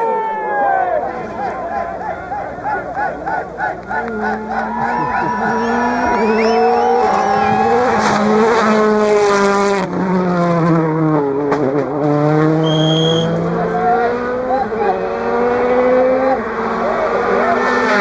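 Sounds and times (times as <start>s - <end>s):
spectators cheering and whistling: 0.0s - 8.6s, 12.6s - 16.0s
rally car engine passing at speed: 0.9s - 18.0s
short high whistle-like tone: 12.6s - 13.3s.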